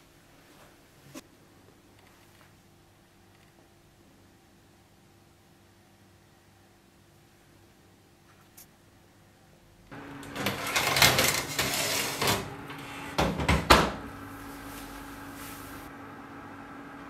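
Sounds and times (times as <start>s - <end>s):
oven humming: 9.9s - 17.0s
oven door shutting: 10.0s - 15.9s
baking tray scraping on rack: 10.1s - 15.9s.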